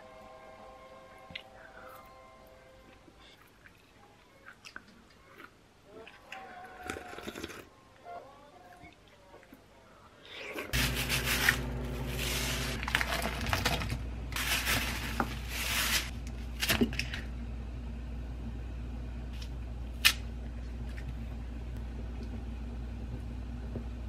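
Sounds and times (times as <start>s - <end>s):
low electrical hum: 0.0s - 24.0s
plastic bag rustling: 10.8s - 17.2s.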